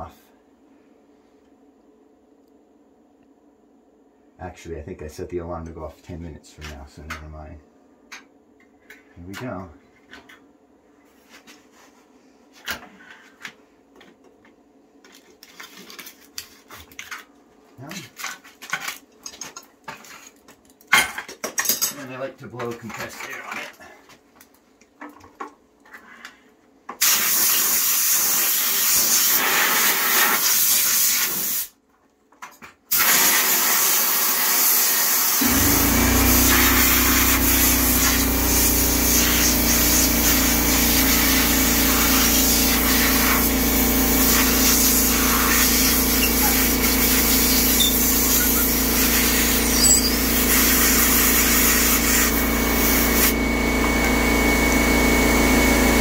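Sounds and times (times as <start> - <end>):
compressed air hissing from nozzle: 32.9 - 53.3
air compressor humming: 35.4 - 56.0.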